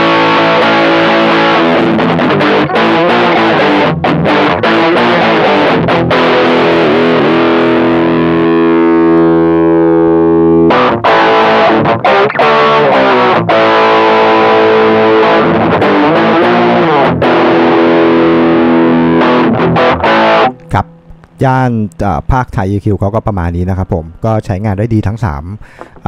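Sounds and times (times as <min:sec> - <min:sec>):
distorted electric guitar chords: 0:00.0 - 0:22.1.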